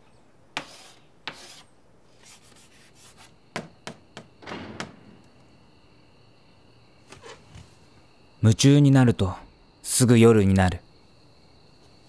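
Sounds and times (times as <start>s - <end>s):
chalk scraping on chalkboard: 0.6s - 3.4s.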